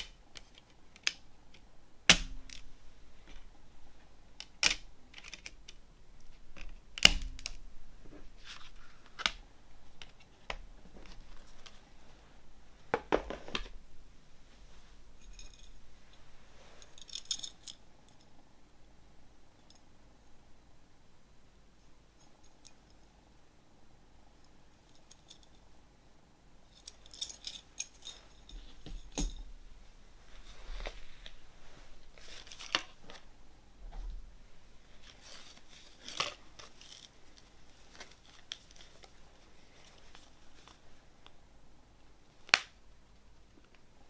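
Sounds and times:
packaging rustling and scraping: 30.3 - 33.2, 34.9 - 40.8.

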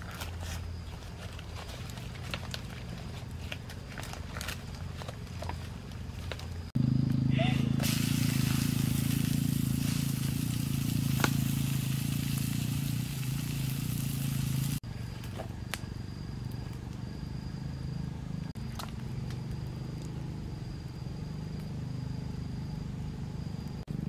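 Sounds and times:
fire crackling: 7.8 - 17.2.

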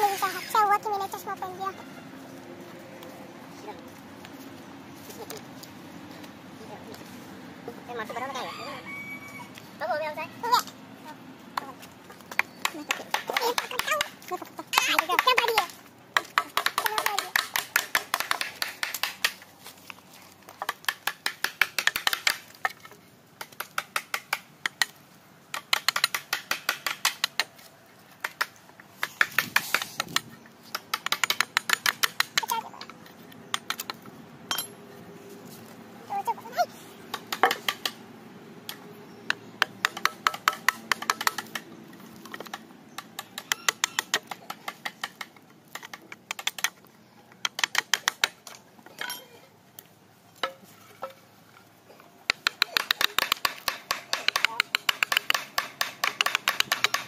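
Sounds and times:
hand tool tapping wood: 11.6 - 19.4, 20.5 - 24.9, 28.2 - 34.7, 37.1 - 38.0, 38.7 - 46.8, 47.4 - 48.6, 52.3 - 57.0.

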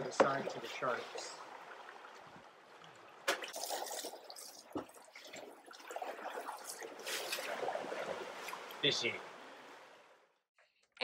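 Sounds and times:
sea water sloshing: 0.0 - 10.4
splash in water: 3.1 - 8.8.

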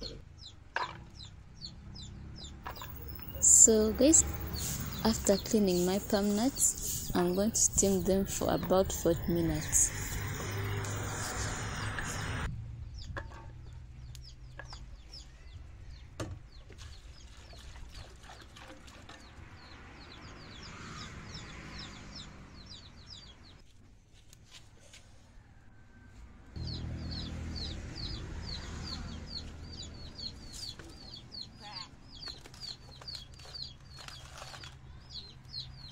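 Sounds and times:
chickens clucking and cheeping: 0.0 - 12.5.

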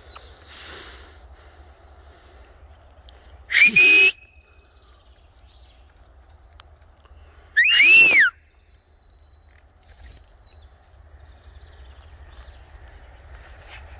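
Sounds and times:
macaw calling: 7.6 - 8.3.

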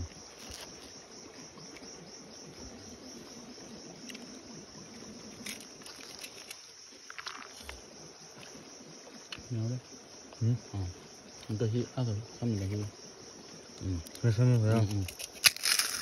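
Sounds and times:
pulsing insect chorus: 0.0 - 16.0
leaves crackling: 13.6 - 16.0.

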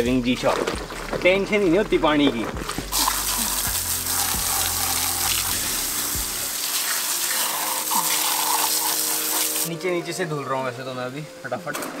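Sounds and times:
garden hose spraying water: 2.6 - 9.8.

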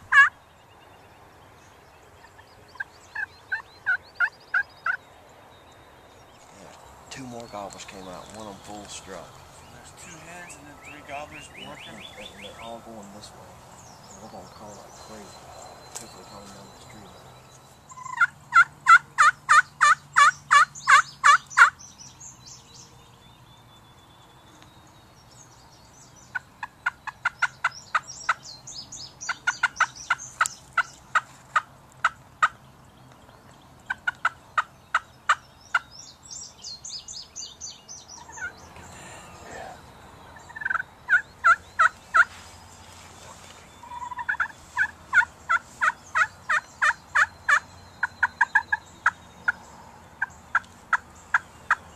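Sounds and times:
turkey call yelps: 0.0 - 0.4, 17.9 - 21.8, 38.2 - 38.5, 40.4 - 42.3, 43.8 - 49.2.

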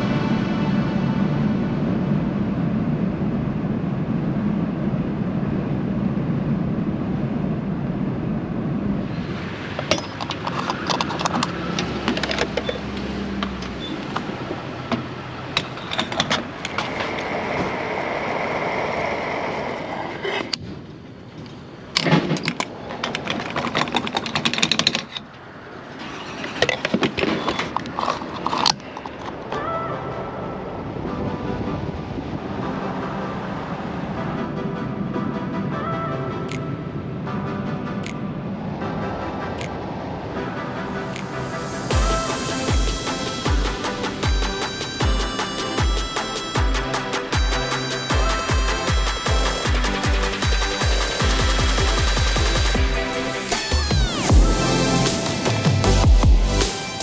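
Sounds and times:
vehicle low drone: 0.0 - 57.0
rattling and clicking clatters: 9.7 - 17.8, 21.3 - 29.5.

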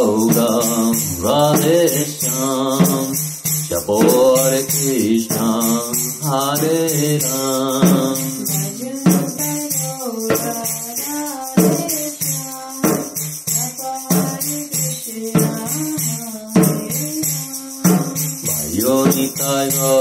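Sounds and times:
jingling hand percussion: 0.0 - 20.0.

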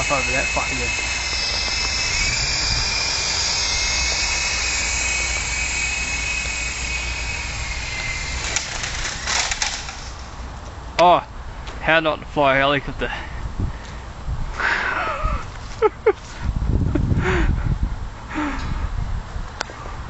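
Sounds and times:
wind rumble on microphone: 0.0 - 10.5, 13.0 - 20.0
rc helicopter motor whining: 0.0 - 10.8
branches clicking and snapping: 8.4 - 10.8.

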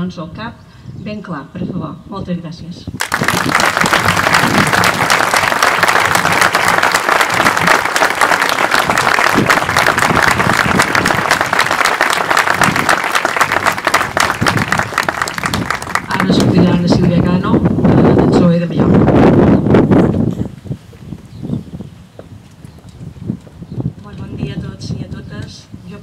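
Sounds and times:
audience applauding: 3.0 - 16.7.

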